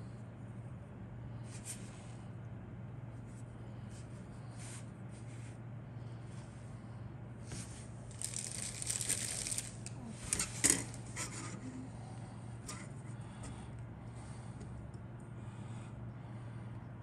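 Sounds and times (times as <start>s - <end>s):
plastic rustling and crinkling: 7.5s - 11.6s.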